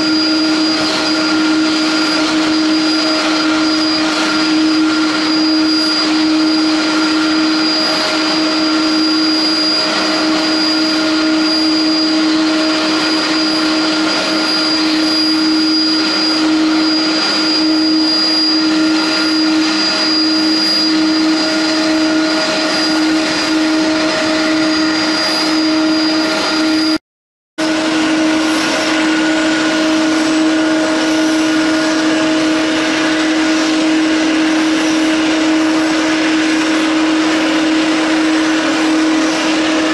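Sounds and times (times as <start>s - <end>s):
jet turbine roar and whine: 0.0s - 27.0s, 27.6s - 39.9s.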